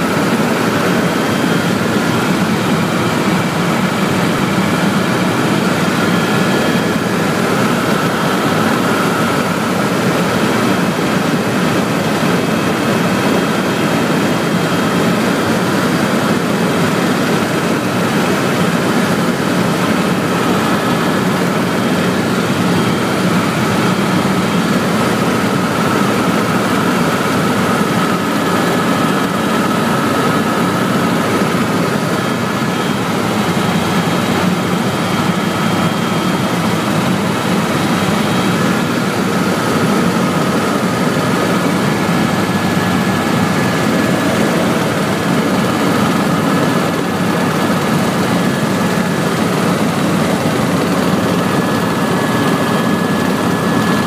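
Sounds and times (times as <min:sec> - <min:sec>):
helicopter engine and rotor drone: 0:00.0 - 0:54.0.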